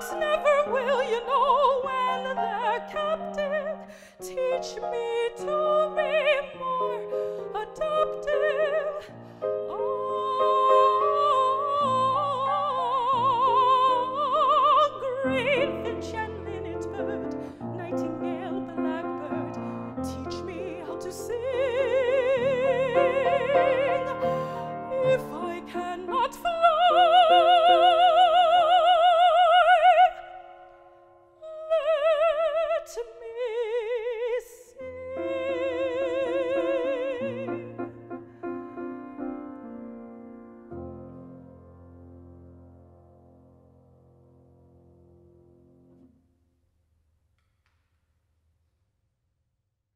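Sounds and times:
operatic woman singing: 0.0 - 30.8, 31.4 - 38.1
grand piano accompaniment: 0.0 - 33.3, 34.8 - 46.1.

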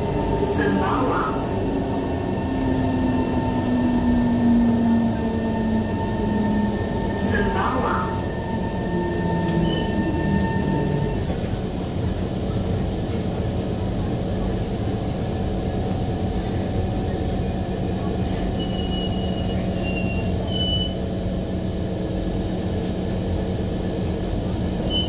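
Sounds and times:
train rumble: 0.0 - 25.0.

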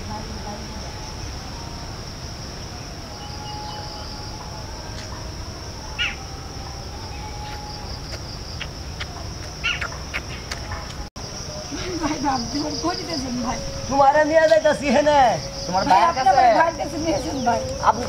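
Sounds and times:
insects droning: 0.0 - 18.0
bird chirps: 7.0 - 11.0.

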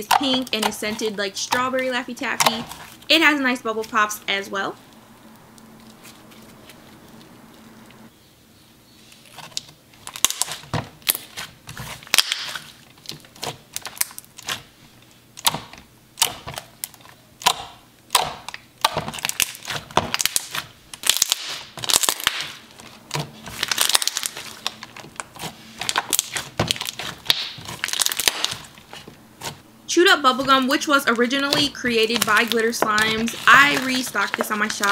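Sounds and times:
slime bubbles popping: 25.9 - 28.6.

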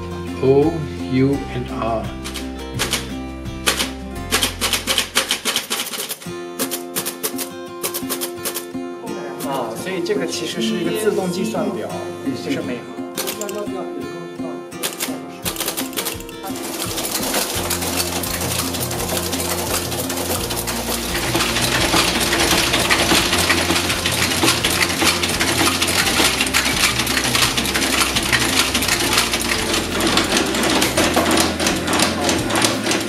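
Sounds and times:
background music with bass: 0.0 - 5.4, 15.4 - 33.0
machine metallic clatter: 3.6 - 8.7, 14.8 - 33.0.

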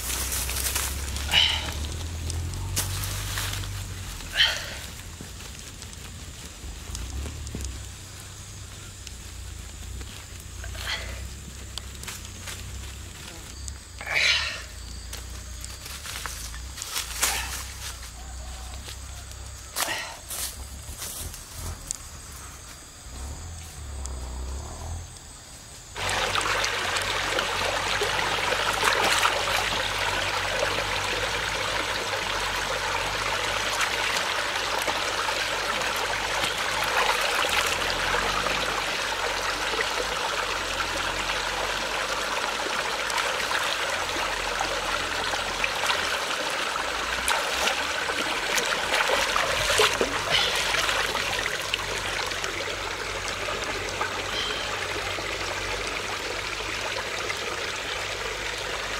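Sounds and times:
water splashes: 0.0 - 13.2, 26.0 - 58.9
stream running over stones: 0.0 - 58.9.

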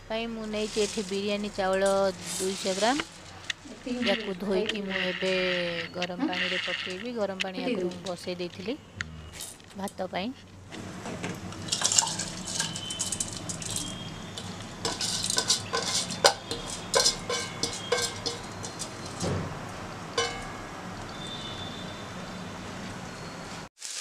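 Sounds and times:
steel bowl knocking against pot: 14.9 - 19.5, 20.2 - 20.7.

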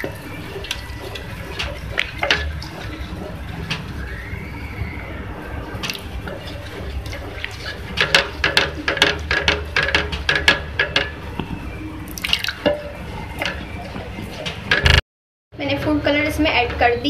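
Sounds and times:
wooden spatula knocking on pot: 6.2 - 11.6.

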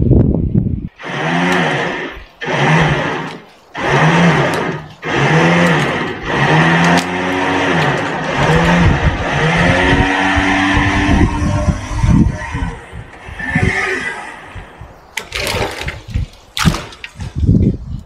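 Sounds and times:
hand saw cutting log: 1.0 - 12.8.

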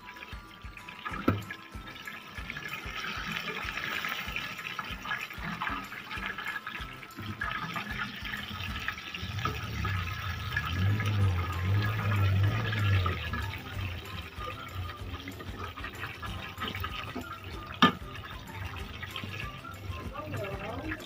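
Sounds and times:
chicken sizzling in hot oil: 0.0 - 21.0
low hum: 9.1 - 17.5.

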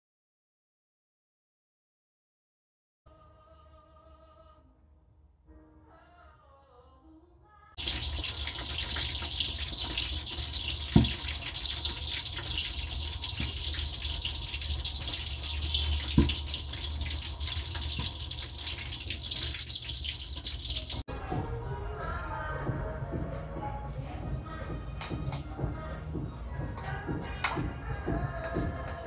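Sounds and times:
deep-frying in hot oil: 7.8 - 21.1.

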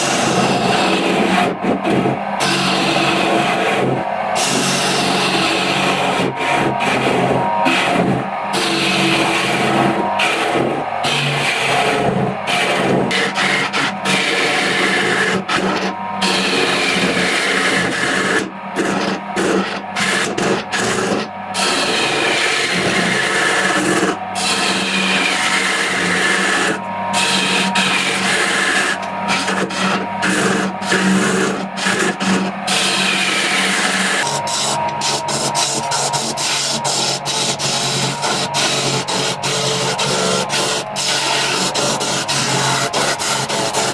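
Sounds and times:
lathe motor hum: 0.0 - 43.9
lathe tool scraping wood: 0.0 - 43.9.

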